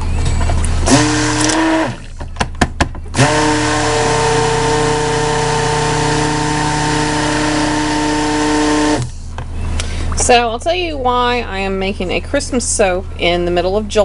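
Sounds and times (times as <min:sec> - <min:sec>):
stick blender running: 0:00.8 - 0:02.2, 0:03.1 - 0:09.2
sharp knocks: 0:02.2 - 0:03.2.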